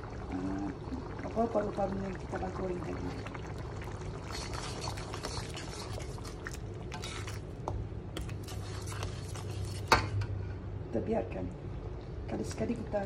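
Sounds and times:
sauce bubbling and spitting: 0.0 - 9.9.

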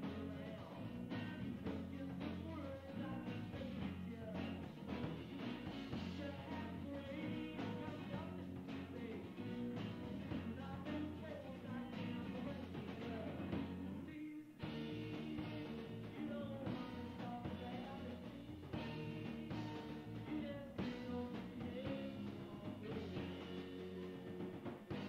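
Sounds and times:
muffled rock band playing: 0.0 - 25.0.

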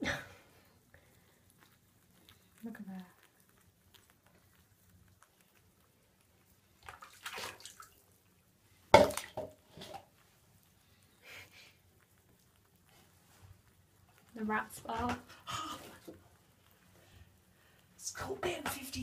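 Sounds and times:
water splashing in a bathtub: 6.6 - 10.4, 12.5 - 19.0.

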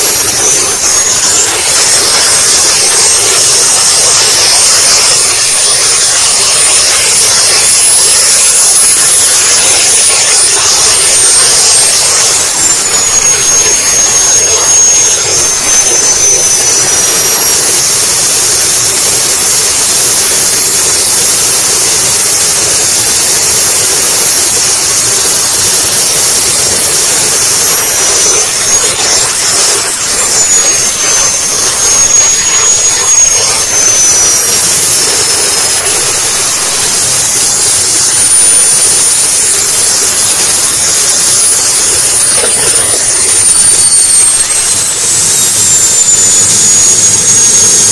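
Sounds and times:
model jet turbine whine: 0.0 - 47.9.

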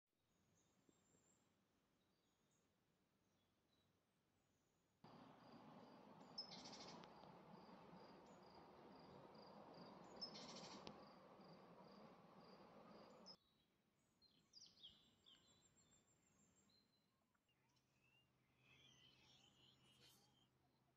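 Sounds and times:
birds chirping: 5.1 - 13.4
faint hissing ambience: 5.1 - 13.4
bird trills: 5.2 - 13.4.

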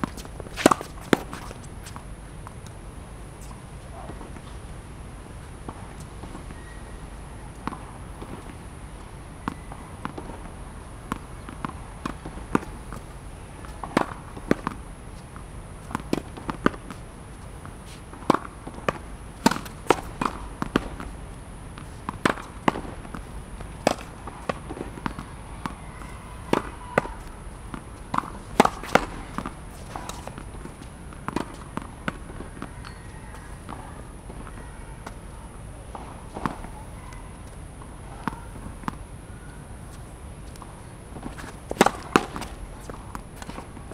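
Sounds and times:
racket hitting tennis ball: 0.0 - 2.8, 17.8 - 21.2, 21.8 - 33.9, 40.5 - 43.9
ball hitting wall: 41.7 - 42.6.

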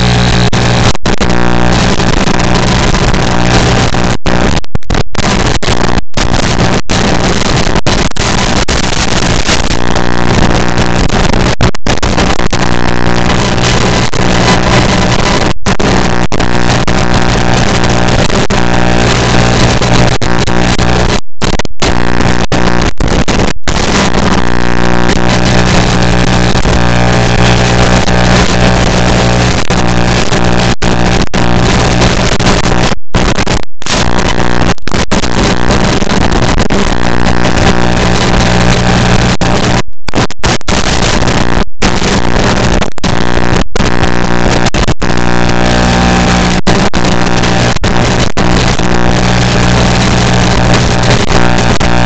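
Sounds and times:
electrical buzz with hiss: 0.0 - 4.6, 21.8 - 39.8, 40.8 - 52.0.

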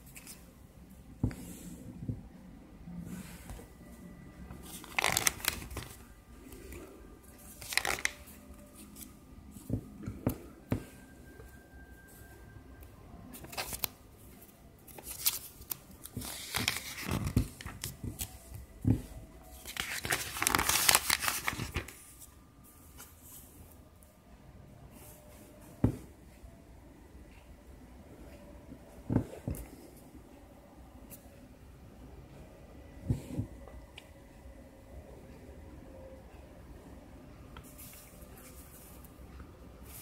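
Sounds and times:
catalogue pages turning: 0.0 - 0.4, 4.5 - 11.0, 13.3 - 22.3.

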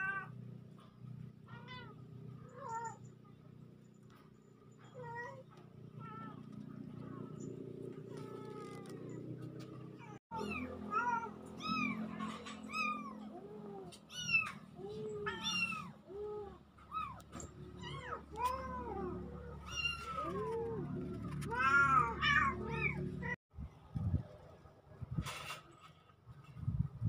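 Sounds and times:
kittens meowing: 10.0 - 23.4.

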